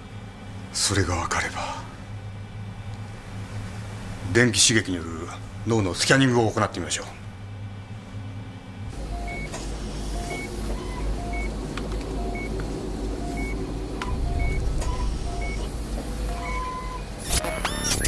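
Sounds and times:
low steady hum: 0.0s - 18.0s
short two-tone electronic beeps: 13.2s - 15.7s, 16.3s - 18.0s
long electronic tone: 13.2s - 18.0s.

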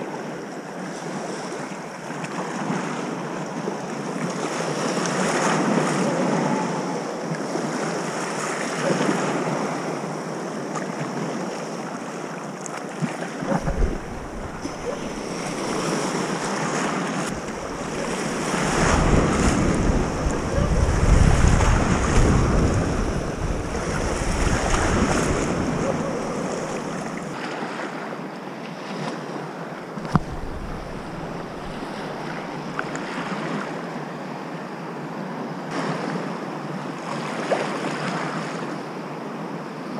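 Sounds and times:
waves washing in shallow water: 0.0s - 34.2s, 35.1s - 39.0s
wind buffeting microphone: 13.4s - 27.4s, 30.0s - 33.0s.

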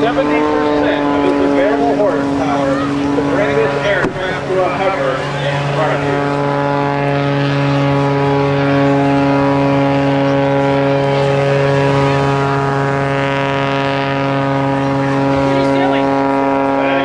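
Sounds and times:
propeller plane engine droning: 0.0s - 17.0s.

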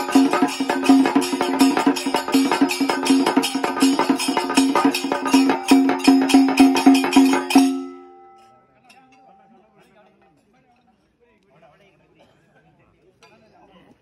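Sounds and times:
barrel drum beating fast: 0.0s - 8.1s.

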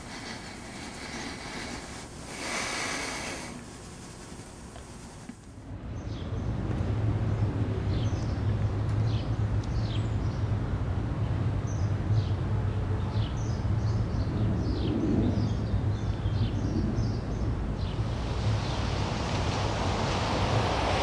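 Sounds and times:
small birds chirping: 0.0s - 6.2s
low street rumble: 17.3s - 21.0s.

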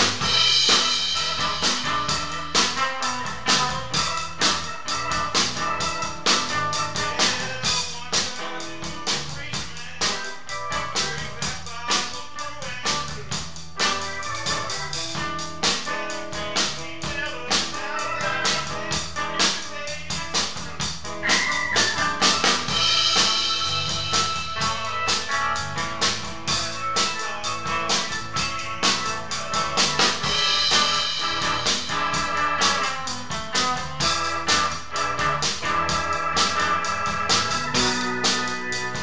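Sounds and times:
cymbals: 0.0s - 8.0s, 21.3s - 39.0s
drum kit beat: 0.0s - 39.0s
keyboard chords: 0.0s - 39.0s.

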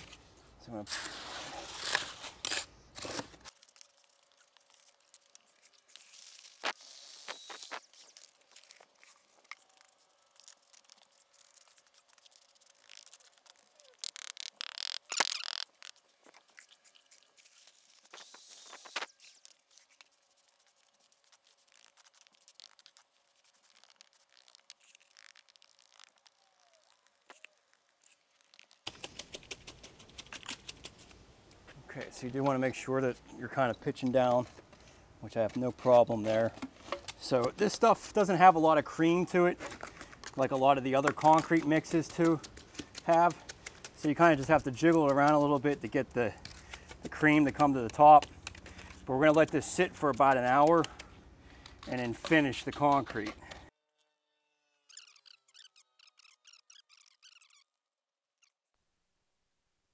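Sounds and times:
hand tool scraping wet concrete: 0.9s - 3.5s, 35.3s - 51.1s, 51.7s - 53.7s.

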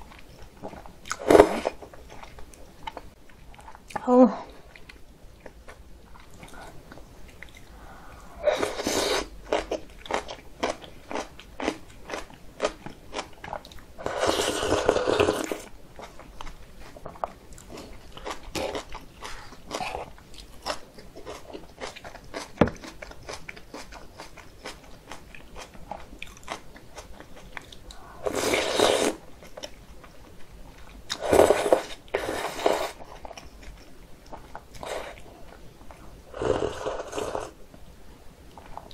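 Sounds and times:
chewing with wet clicks: 4.7s - 7.7s, 16.0s - 28.0s
slurping noodles: 8.4s - 9.3s, 14.0s - 15.7s, 28.2s - 29.2s, 31.2s - 33.0s, 36.3s - 37.5s.

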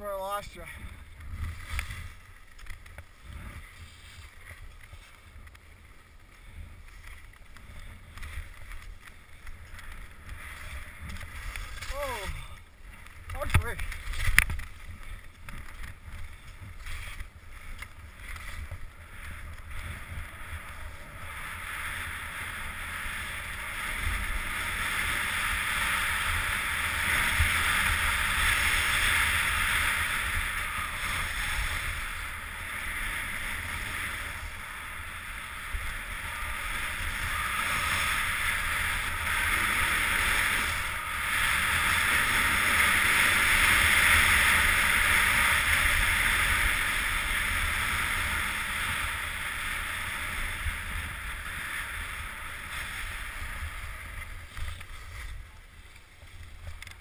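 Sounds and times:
skis scraping over snow: 0.0s - 57.0s.

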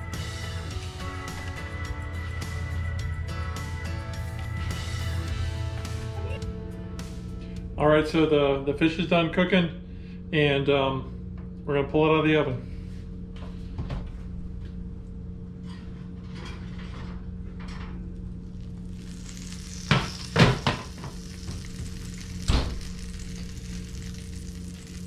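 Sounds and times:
steady hum: 6.1s - 25.0s
dish sizzling: 18.5s - 25.0s.

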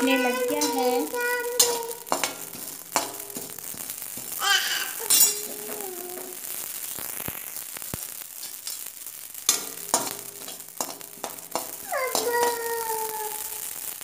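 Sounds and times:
spatula scraping a pan: 0.0s - 6.3s, 9.5s - 13.2s
seeds popping in a pan: 0.0s - 14.0s.

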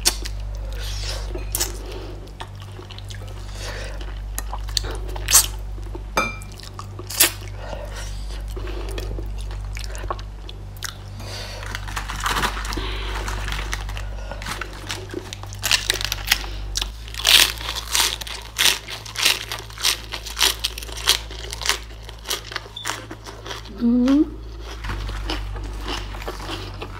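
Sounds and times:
lettuce crunching: 8.3s - 26.9s.

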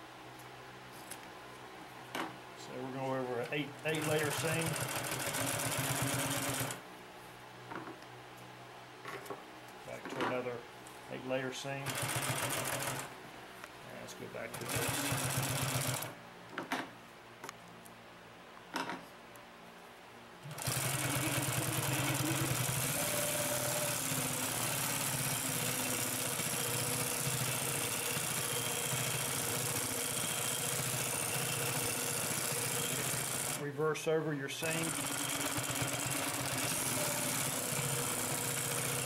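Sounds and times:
industrial sewing machine stitching: 3.9s - 6.8s, 11.8s - 13.1s, 14.5s - 16.1s, 20.4s - 33.6s, 34.6s - 39.0s.

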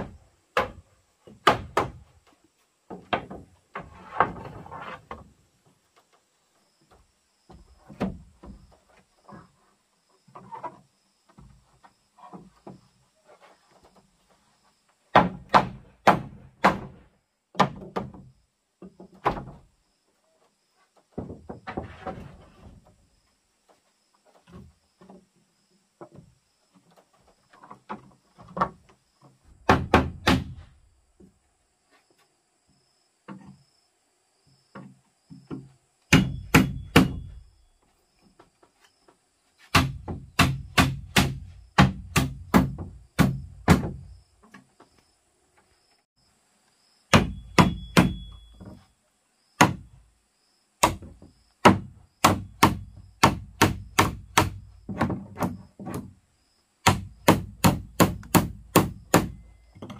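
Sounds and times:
hammer blows nailing boards: 0.0s - 2.2s, 15.1s - 18.3s, 29.5s - 30.8s, 34.7s - 37.5s, 39.6s - 44.6s, 47.1s - 48.8s, 49.6s - 50.0s, 50.8s - 56.2s, 56.8s - 59.9s
wooden planks knocking: 0.0s - 5.8s, 15.1s - 19.7s, 21.0s - 23.0s, 26.0s - 31.3s, 39.7s - 44.8s, 50.8s - 56.2s.

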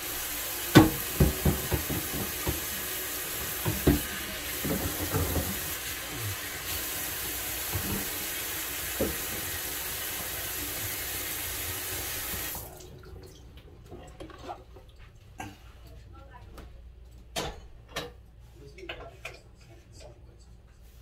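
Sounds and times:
faucet running into a pot: 0.0s - 12.9s
meat knocking in a pot: 0.7s - 2.8s.

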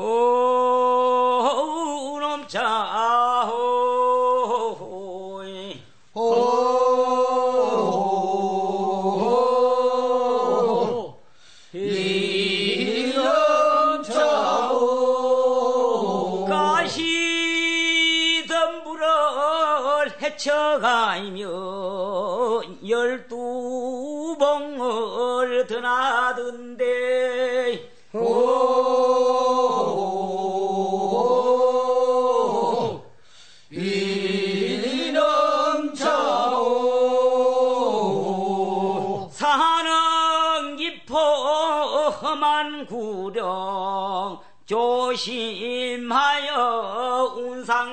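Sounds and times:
unaccompanied voices chanting: 3.5s - 18.6s, 26.8s - 39.6s.

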